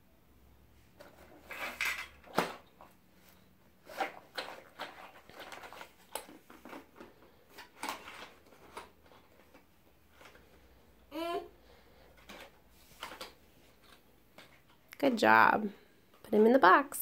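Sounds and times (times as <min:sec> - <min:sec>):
pencil box rustling: 0:01.0 - 0:10.7.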